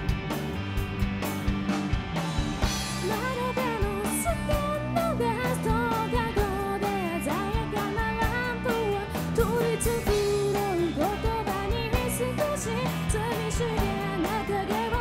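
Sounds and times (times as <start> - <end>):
live rock band: 0.0 - 15.0
woman singing: 3.0 - 15.0.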